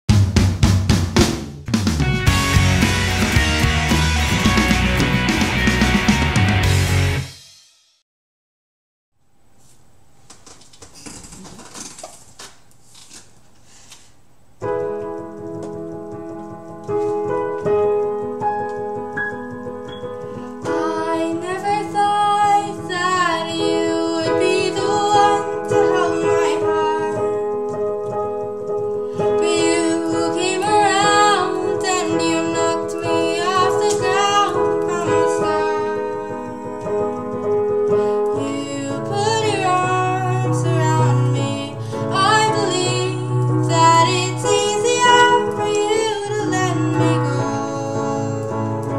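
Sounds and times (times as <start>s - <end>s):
digital piano chords: 1.6s - 7.3s, 14.5s - 48.9s
girl singing a ballad: 20.4s - 27.5s, 29.1s - 48.9s.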